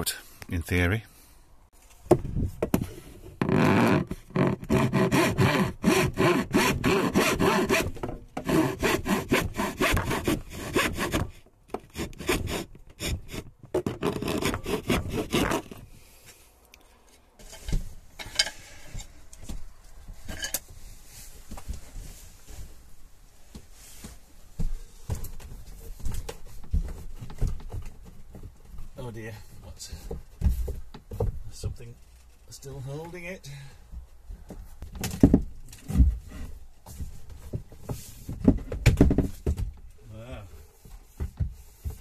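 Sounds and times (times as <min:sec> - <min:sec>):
hand saw cutting chipboard: 0:03.6 - 0:15.8.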